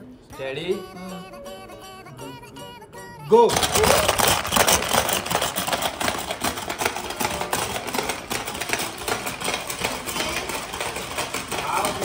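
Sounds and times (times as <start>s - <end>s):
marbles rattling on plastic board: 3.5s - 12.0s.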